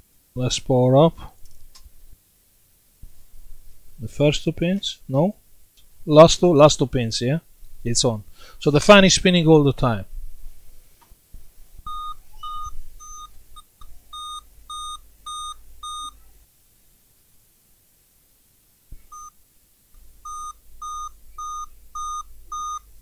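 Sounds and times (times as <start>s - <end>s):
laptop short beeps: 11.9s - 16.2s, 19.1s - 19.4s, 20.2s - 22.9s.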